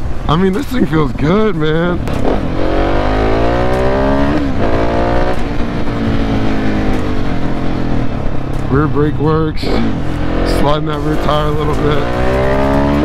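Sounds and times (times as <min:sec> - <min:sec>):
low wind rumble: 0:00.0 - 0:13.0
motorcycle engine revving: 0:01.2 - 0:13.0.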